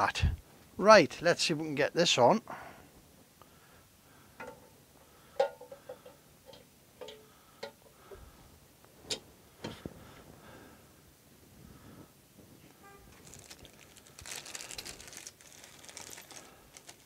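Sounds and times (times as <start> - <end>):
metallic clinks and knocks: 4.4 - 4.8, 5.4 - 7.9.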